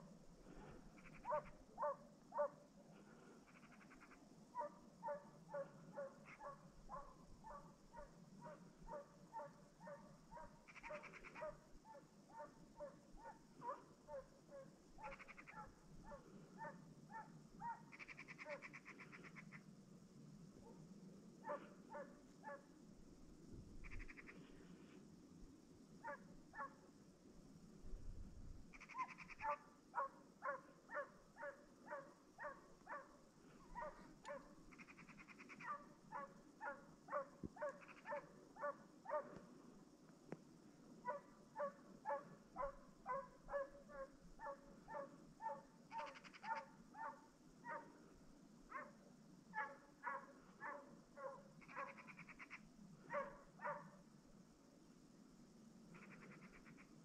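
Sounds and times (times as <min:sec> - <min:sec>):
hound baying: 0:01.1 - 0:02.6, 0:04.6 - 0:18.6, 0:21.4 - 0:22.6, 0:29.0 - 0:34.6, 0:35.6 - 0:39.4, 0:41.0 - 0:47.9, 0:49.6 - 0:52.0, 0:53.1 - 0:53.9.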